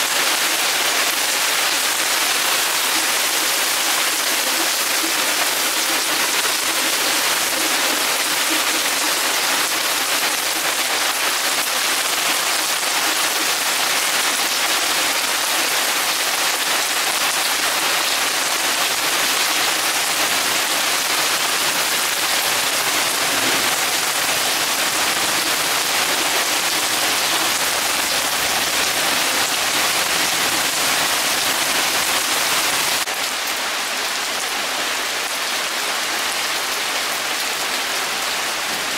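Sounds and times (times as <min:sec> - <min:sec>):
heavy rain pouring: 0:00.0 - 0:38.9.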